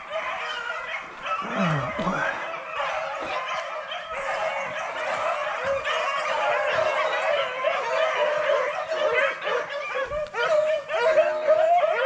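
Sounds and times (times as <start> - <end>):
dogs baying and yipping: 0.0 - 12.0.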